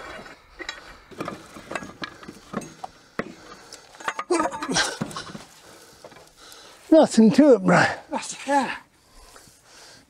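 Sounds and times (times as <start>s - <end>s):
metal knocks clinks and scrapes: 0.0s - 6.3s.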